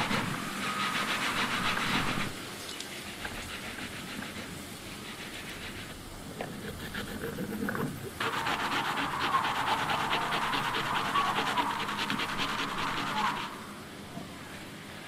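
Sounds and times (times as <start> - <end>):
food grated on metal grater: 0.0 - 2.4, 8.2 - 13.6.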